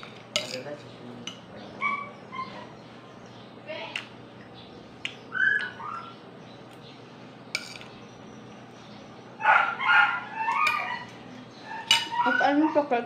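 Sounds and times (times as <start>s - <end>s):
animal whining calls: 1.7s - 2.9s, 5.3s - 6.3s, 9.4s - 13.0s.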